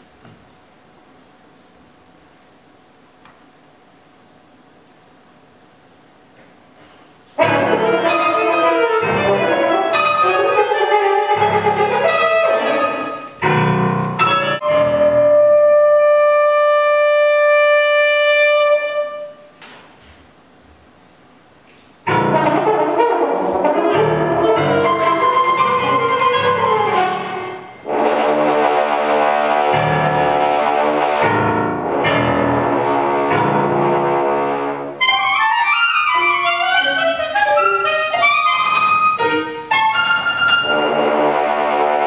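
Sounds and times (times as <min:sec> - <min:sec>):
clarinet horn and piano trio: 0:07.4 - 0:19.5, 0:22.1 - 0:42.0.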